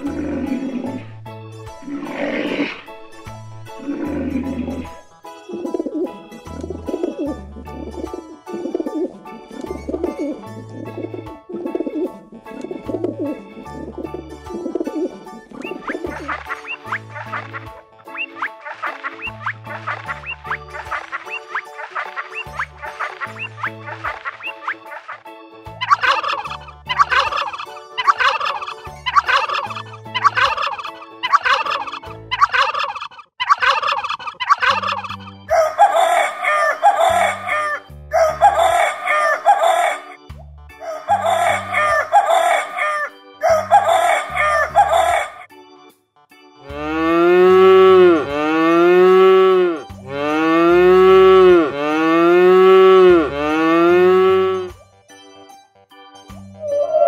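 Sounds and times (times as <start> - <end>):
cow mooing: 3.8 - 5.0, 46.7 - 54.7
rooster crowing: 35.5 - 40.1, 40.8 - 45.4.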